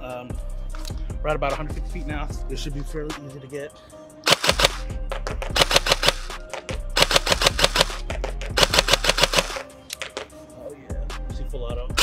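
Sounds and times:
background music: 0.0s - 12.0s
airsoft rifle firing: 4.2s - 4.9s, 5.5s - 6.4s, 7.0s - 9.6s.

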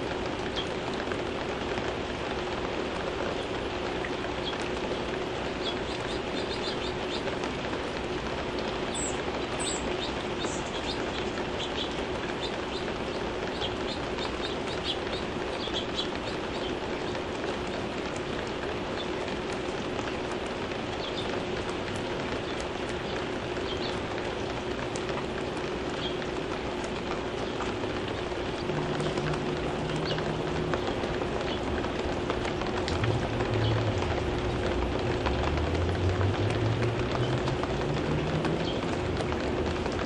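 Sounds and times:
rain falling on leaves: 0.0s - 40.0s
small birds chipping: 3.2s - 35.6s, 36.3s - 40.0s
low drone: 27.6s - 39.4s.

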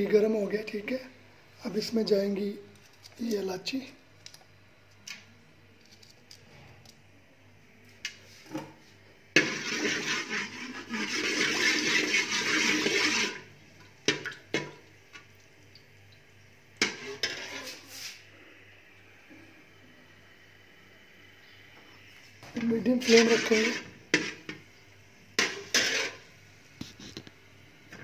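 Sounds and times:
spices sizzling in hot ghee: 22.9s - 27.0s.

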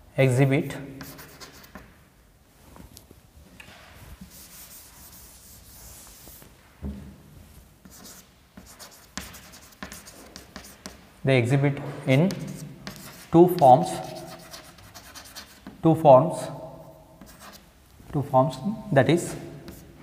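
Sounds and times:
chalk scratching on blackboard: 1.0s - 1.9s, 4.2s - 6.4s, 7.8s - 11.0s, 12.2s - 15.8s, 17.2s - 17.7s, 19.3s - 20.0s
blackboard being wiped: 4.0s - 6.7s, 7.4s - 11.0s.

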